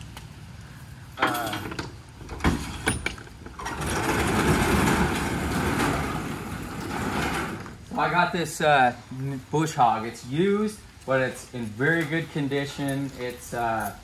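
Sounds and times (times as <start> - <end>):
latch and handle clanks: 1.2 - 7.8
roll-up door rolling rattle: 1.2 - 8.0.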